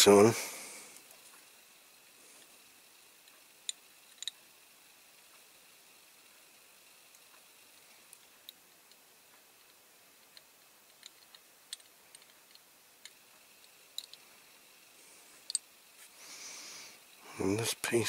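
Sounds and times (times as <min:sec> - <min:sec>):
model parts clicking together: 0:03.2 - 0:04.5, 0:08.1 - 0:14.2.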